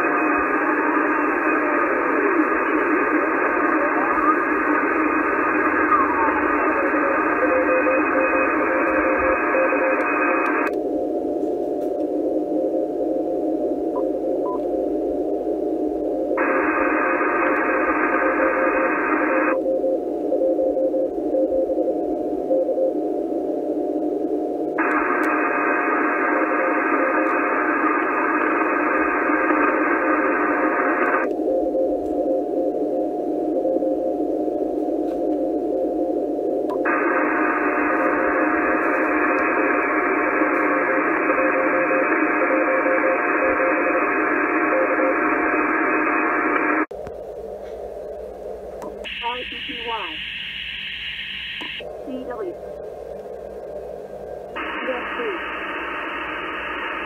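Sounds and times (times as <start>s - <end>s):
faint morse code signal: 0.0s - 15.4s, 16.0s - 46.9s, 48.8s - 52.6s, 54.6s - 57.0s
radio receiver hiss: 0.0s - 57.0s
faint morse code tone: 49.1s - 52.3s.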